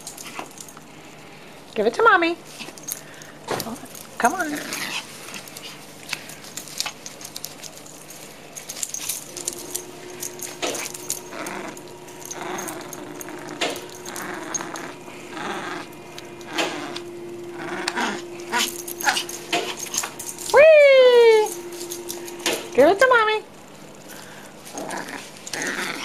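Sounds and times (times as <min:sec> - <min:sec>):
dog collar tags jingling: 0:00.0 - 0:00.8, 0:02.5 - 0:15.0, 0:18.4 - 0:23.0.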